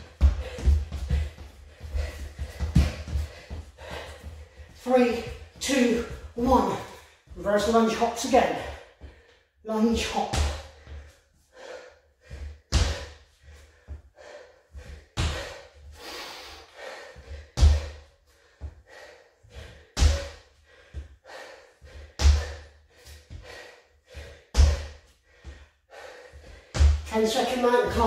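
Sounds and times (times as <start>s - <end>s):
hard breathing: 0.0s - 9.6s, 10.4s - 28.0s
trainers thudding on hard floor: 2.0s - 4.1s.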